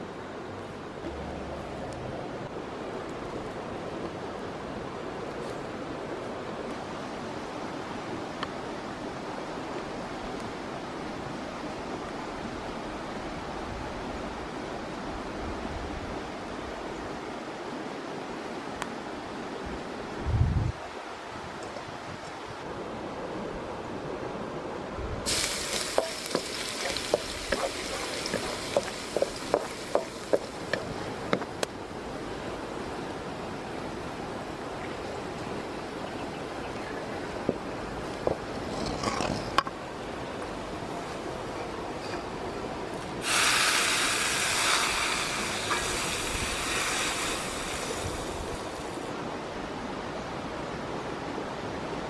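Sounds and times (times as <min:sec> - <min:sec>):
garlic sizzling in oil: 0:25.3 - 0:30.9, 0:43.2 - 0:49.0
wooden spatula scraping a wok: 0:25.6 - 0:30.8.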